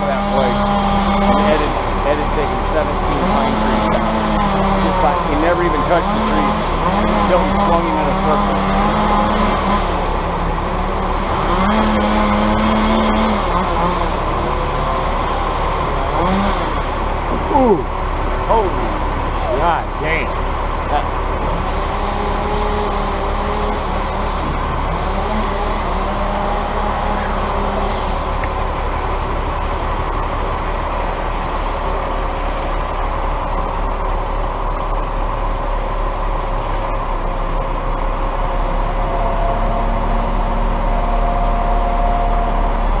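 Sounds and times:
crane engine running: 0.0s - 43.0s.

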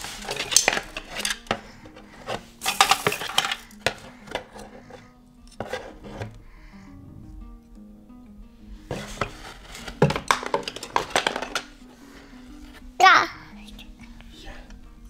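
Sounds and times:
toys clattering in cardboard box: 0.0s - 4.8s, 9.0s - 11.8s.

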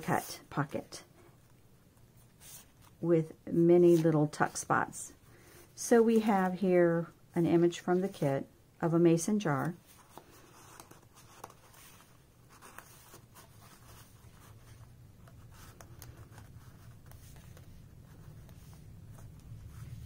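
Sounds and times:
paper rustling: 9.4s - 20.0s.

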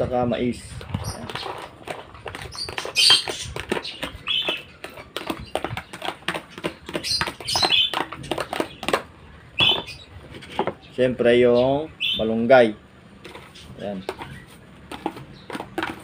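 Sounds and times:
birds chirping: 0.0s - 16.0s
spoon tapping and scraping plastic: 0.8s - 10.8s, 13.2s - 16.0s.

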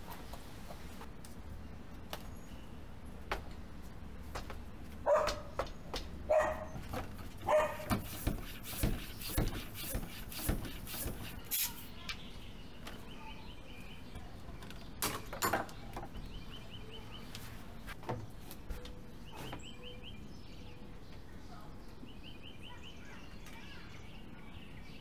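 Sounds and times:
dog barking: 5.0s - 5.6s, 6.3s - 6.8s, 7.4s - 7.9s.

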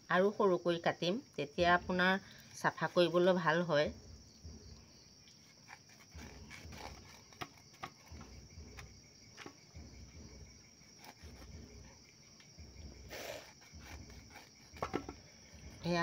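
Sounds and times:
insects chirring: 0.0s - 16.0s
blade cutting meat: 5.4s - 8.4s, 10.8s - 11.8s, 13.1s - 15.1s.

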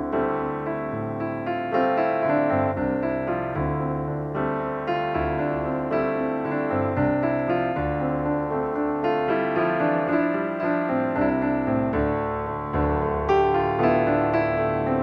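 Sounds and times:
calm piano piece: 0.0s - 15.0s.

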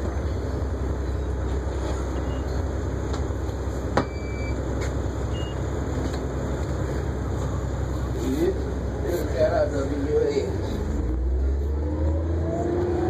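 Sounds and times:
bus interior rumble: 0.0s - 13.0s.

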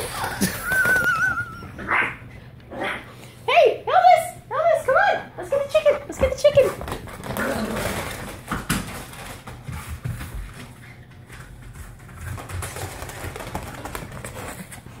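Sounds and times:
dog paws scrabbling on plastic: 0.0s - 1.6s, 5.6s - 15.0s.

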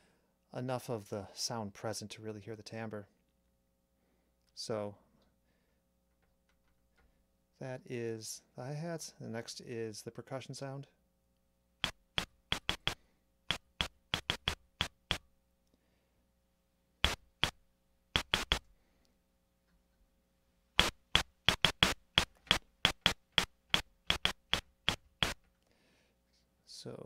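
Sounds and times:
drum machine clicky hits: 11.8s - 15.2s, 17.0s - 17.6s, 18.2s - 18.6s, 20.8s - 25.4s.

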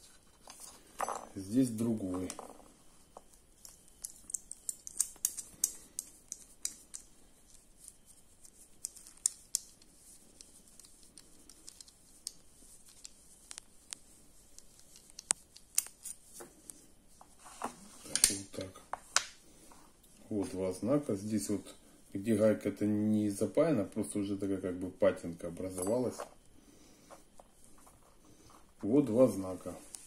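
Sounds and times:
metal badges clicking and scraping: 0.0s - 16.8s.

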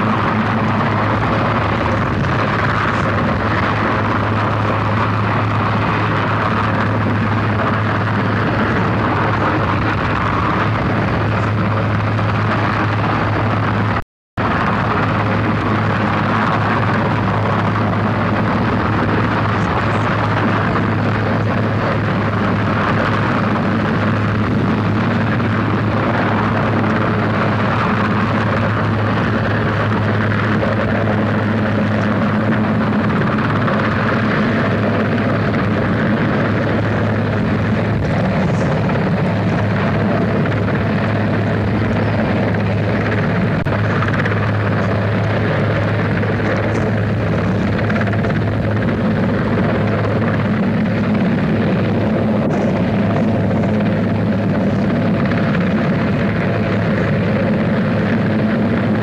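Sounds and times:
helicopter rotor drone: 0.0s - 59.0s.

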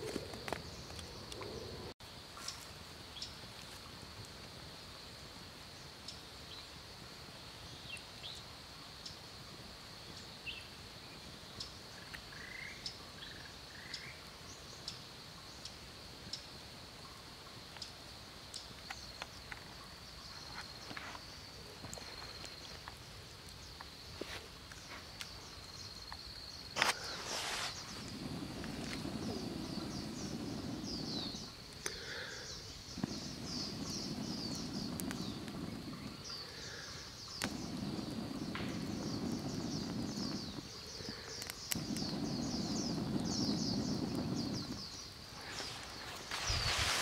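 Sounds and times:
high insect drone: 0.0s - 47.0s
sharp crack: 26.8s - 32.2s, 37.2s - 40.6s.

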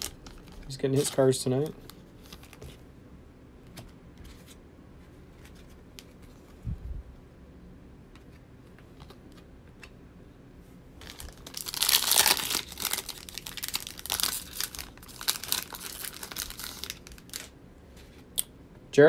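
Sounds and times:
foil wrapper tearing and crinkling: 11.0s - 17.5s.

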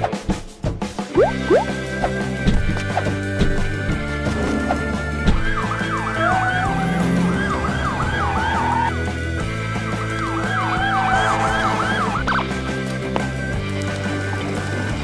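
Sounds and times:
background music: 0.0s - 15.0s
fire truck siren yelping: 5.3s - 9.2s, 9.8s - 12.5s.

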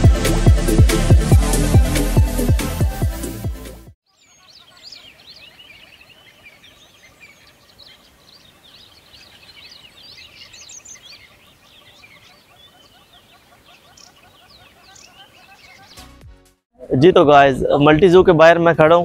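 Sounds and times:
flock of small birds chirping: 4.1s - 16.2s.

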